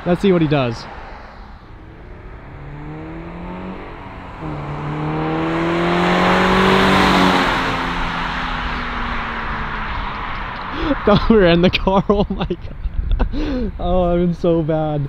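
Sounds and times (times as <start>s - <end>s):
car engine accelerating past: 0.3s - 11.4s.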